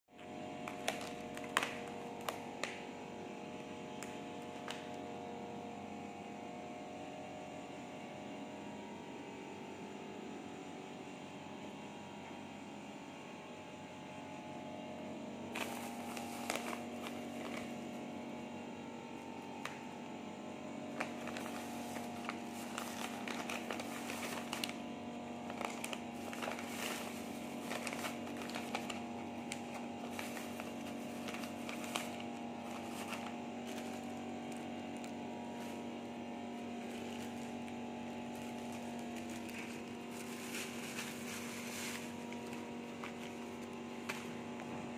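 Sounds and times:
electrical hum: 0:00.1 - 0:44.9
plastic bags crinkling: 0:00.2 - 0:03.0, 0:15.5 - 0:18.3, 0:20.8 - 0:44.9.

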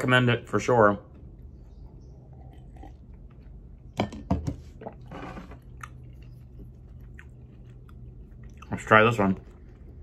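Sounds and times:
chewing chocolate candy: 0:05.6 - 0:10.0.

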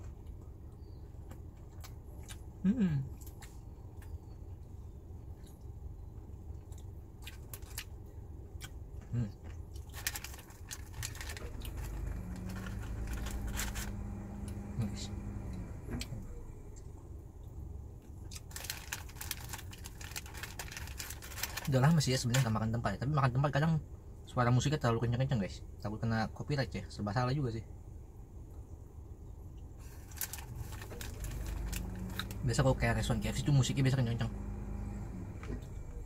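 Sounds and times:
chewing and crunching: 0:00.0 - 0:04.7, 0:05.3 - 0:14.6, 0:16.8 - 0:21.8, 0:29.8 - 0:32.4
low steady rumble: 0:00.0 - 0:36.0
low hum: 0:10.2 - 0:18.1, 0:28.0 - 0:36.0.

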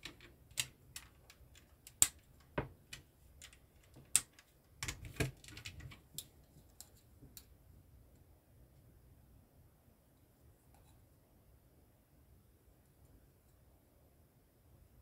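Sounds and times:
plastic bricks clicking and rattling: 0:00.0 - 0:06.3.

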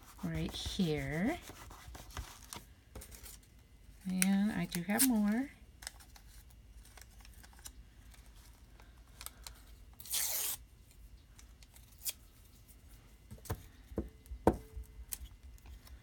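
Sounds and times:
paper tearing: 0:10.0 - 0:10.6.

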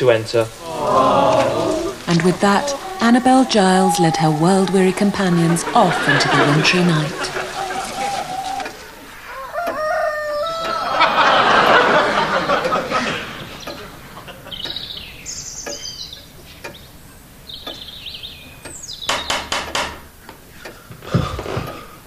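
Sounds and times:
small birds chirping: 0:00.0 - 0:10.9, 0:12.2 - 0:21.1
rooster crowing: 0:00.6 - 0:13.4
sharp knocks: 0:19.1 - 0:20.1.

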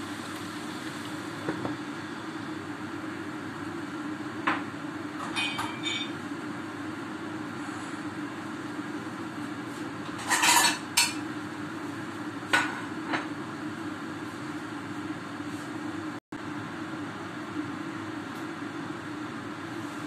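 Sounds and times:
metal cookware clattering: 0:05.2 - 0:06.2, 0:10.2 - 0:11.2.

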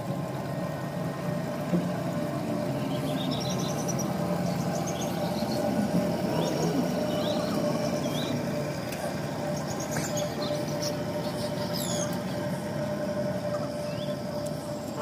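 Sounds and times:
steady low drone: 0:00.0 - 0:15.0
small birds chirping: 0:02.7 - 0:08.6, 0:09.2 - 0:15.0.

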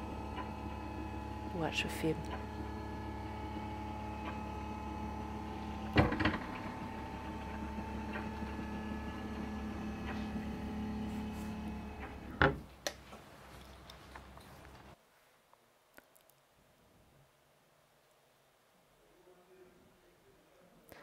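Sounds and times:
electric lift motor humming: 0:00.0 - 0:12.7
lift clunks: 0:02.3 - 0:12.7.

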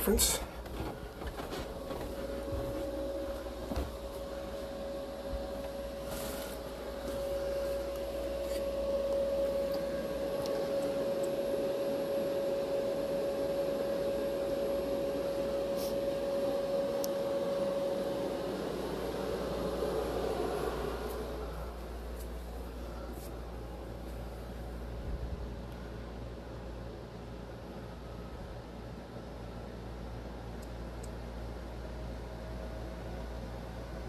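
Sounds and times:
appliance motor humming: 0:00.6 - 0:24.2
whining tone: 0:01.3 - 0:22.2.

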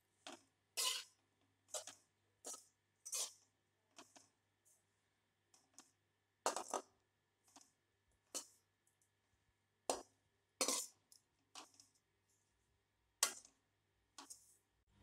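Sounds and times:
metal spatula scraping a pan: 0:00.8 - 0:03.5, 0:10.6 - 0:11.0.

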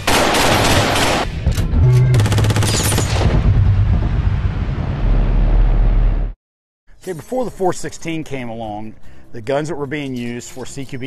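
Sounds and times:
automatic rifle fire: 0:00.0 - 0:01.3
deep low rumble: 0:03.1 - 0:06.4.

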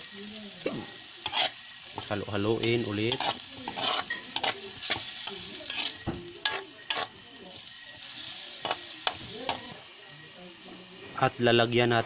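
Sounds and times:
food sizzling: 0:00.0 - 0:12.0
metal ladle scraping a wok: 0:01.2 - 0:09.7.

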